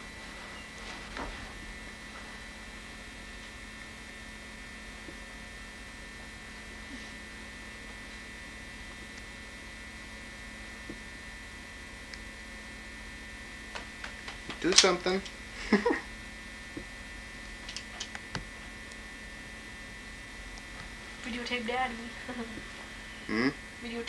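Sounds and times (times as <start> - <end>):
electrical hum with high whine: 0.0 - 24.0.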